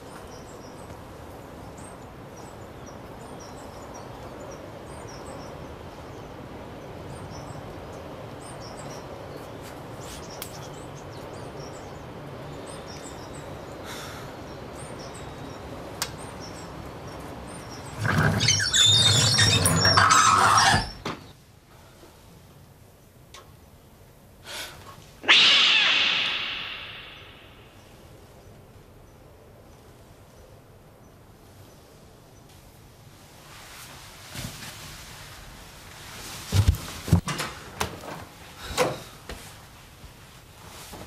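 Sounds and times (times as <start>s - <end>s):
small birds chirping: 0.0s - 21.4s, 25.2s - 32.6s
outdoor background hum: 0.0s - 41.0s
loud harsh noise: 25.2s - 27.8s.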